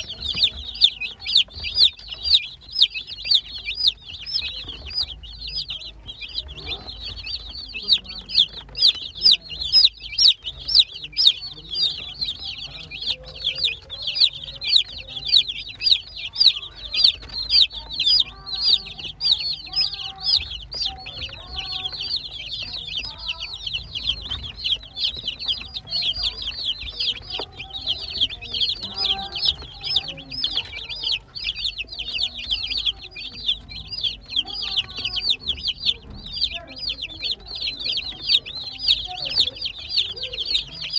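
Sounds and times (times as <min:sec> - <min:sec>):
baby chicks peeping: 0:00.0 - 0:40.9.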